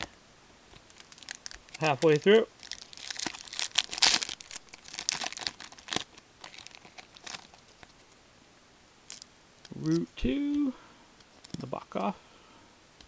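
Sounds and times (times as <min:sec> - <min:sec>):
card pack wrapper crinkling: 0:00.8 - 0:08.2.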